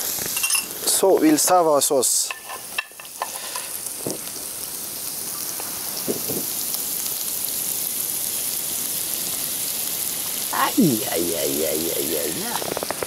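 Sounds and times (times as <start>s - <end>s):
sauce sizzling in frying pan: 0.0s - 13.0s.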